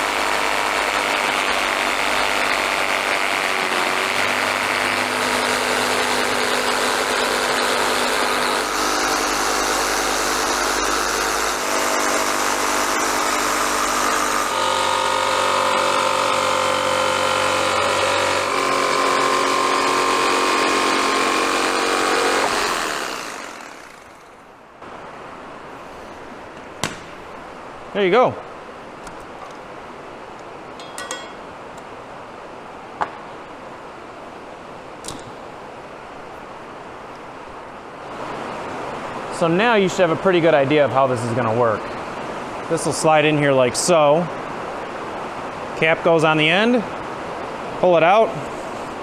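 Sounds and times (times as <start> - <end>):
jigsaw cutting plastic pipe: 0.0 - 24.4.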